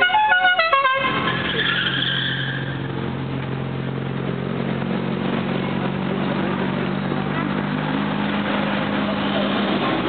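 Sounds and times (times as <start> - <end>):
musical car horn: 0.0 - 1.9
car engine running: 2.5 - 10.0.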